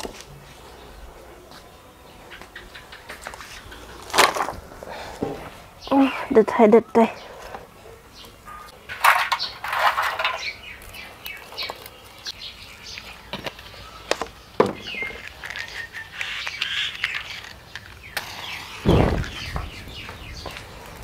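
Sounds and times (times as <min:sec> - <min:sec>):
small birds chirping: 0:00.2 - 0:21.0
twigs rustling and snapping: 0:03.1 - 0:04.6, 0:08.2 - 0:21.0.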